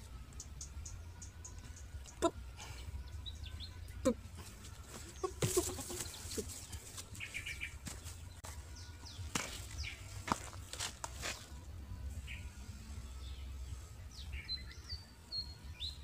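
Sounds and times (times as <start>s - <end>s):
puppies chirping: 3.4s - 8.2s.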